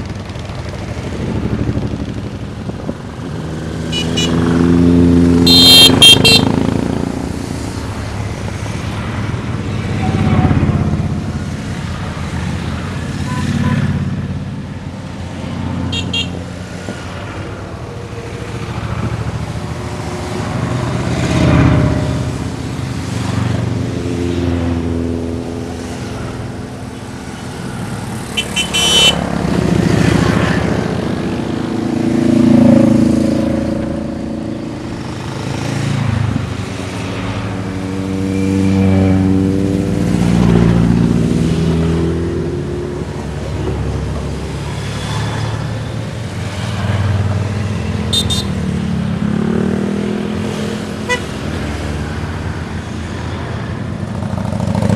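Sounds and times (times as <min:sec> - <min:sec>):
motorcycles riding past: 0:00.0 - 0:54.9
short horn beeps: 0:03.9 - 0:04.4, 0:05.5 - 0:06.5, 0:28.4 - 0:29.2, 0:48.1 - 0:48.6, 0:51.1 - 0:51.3.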